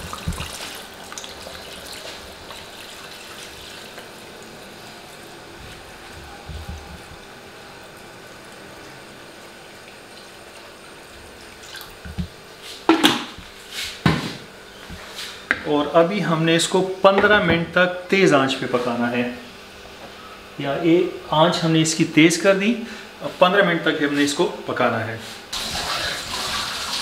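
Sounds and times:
water pouring into a pan: 25.6 - 27.0.

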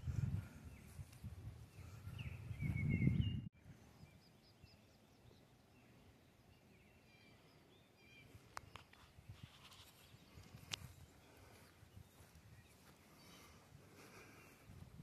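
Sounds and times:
low rumble on microphone: 0.0 - 3.8
small birds chirping: 0.0 - 15.0.

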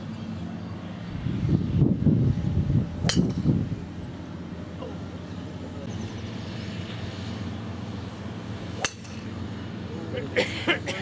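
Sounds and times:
golf club striking ball: 3.0 - 3.6, 8.5 - 9.5.

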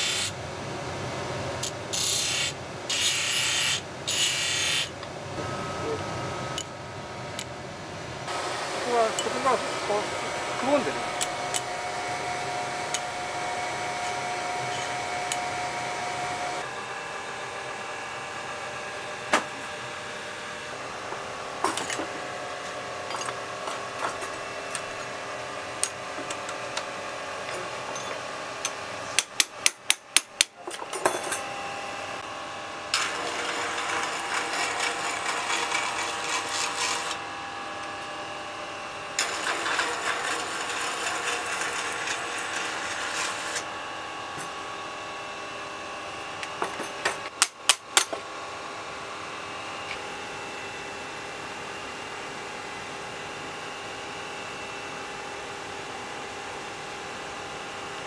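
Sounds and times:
machine hum: 3.9 - 29.2
hammer strikes on steel: 29.1 - 30.6.

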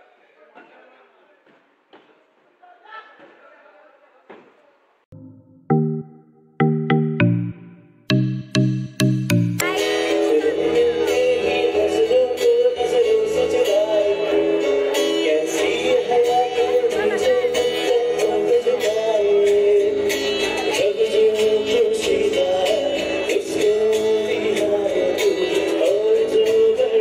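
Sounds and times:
bass guitar: 5.1 - 27.0
person singing: 6.6 - 20.0
acoustic guitar: 9.0 - 27.0.

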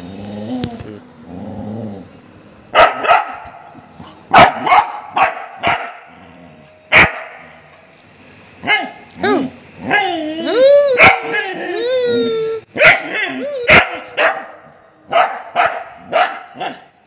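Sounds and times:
dog barking: 2.7 - 3.6, 4.3 - 6.1, 6.9 - 7.5, 8.6 - 10.0, 11.0 - 11.4, 12.8 - 16.9.

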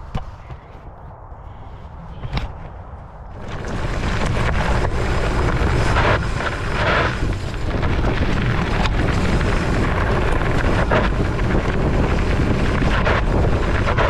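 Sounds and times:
wind rumble on microphone: 0.0 - 14.0
tyres rolling on gravel: 3.3 - 14.0.

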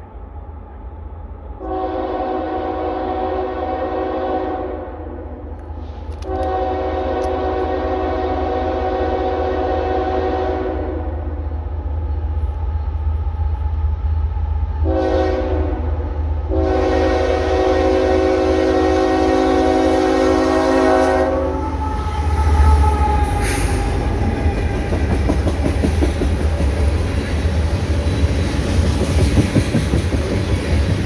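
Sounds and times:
diesel locomotives rumbling: 0.0 - 31.0
locomotive horn blasts: 1.6 - 5.4, 6.2 - 11.3, 14.8 - 24.0
train wheels rolling and clicking: 5.5 - 7.7, 21.8 - 31.0.

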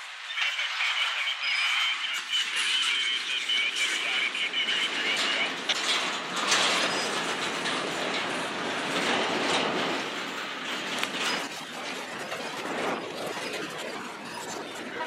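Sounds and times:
freight train cars rolling: 0.0 - 15.0
wheels clicking over rail joints: 2.6 - 15.0.

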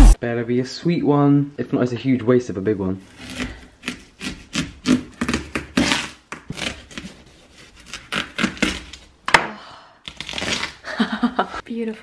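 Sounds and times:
knife sawing through melon rind: 3.1 - 8.9.

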